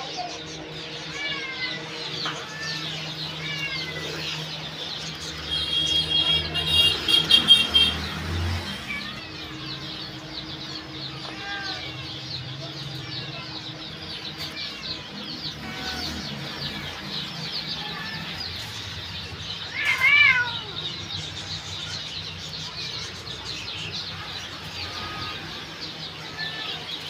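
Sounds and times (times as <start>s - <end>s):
small birds chirping: 0.0s - 27.0s
cat meowing: 1.0s - 4.8s, 7.8s - 9.9s, 10.8s - 12.1s, 15.5s - 16.8s, 17.7s - 18.7s, 19.6s - 21.1s, 26.2s - 26.9s.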